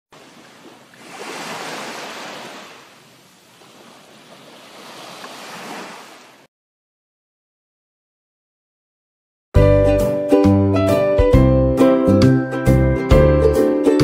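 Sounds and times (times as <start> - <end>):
wave washing in: 0.1 - 6.5.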